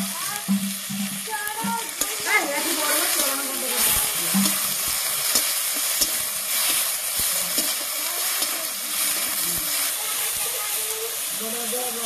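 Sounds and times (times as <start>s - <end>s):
onions sizzling in hot oil: 0.0s - 12.0s
metal spatula scraping a pan: 1.5s - 10.7s.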